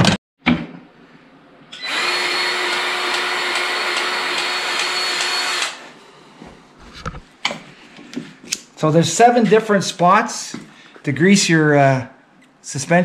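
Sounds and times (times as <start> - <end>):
electric grease gun motor: 1.8 - 5.8.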